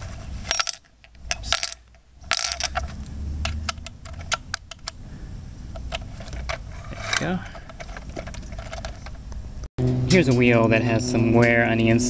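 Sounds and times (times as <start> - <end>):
metal wrench scraping in bolt: 0.4 - 3.0, 6.1 - 9.1.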